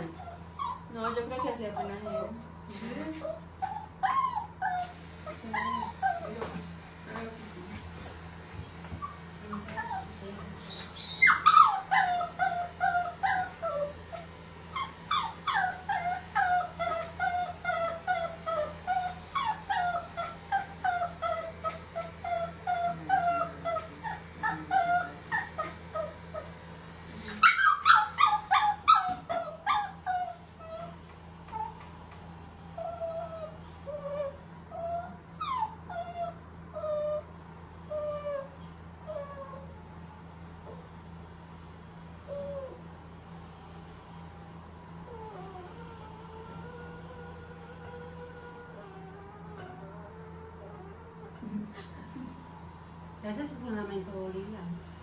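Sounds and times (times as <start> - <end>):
puppy whimpering: 0.0 - 2.5, 3.2 - 6.6, 8.9 - 31.8, 32.6 - 37.3, 37.9 - 39.8, 42.2 - 42.9, 45.1 - 51.5.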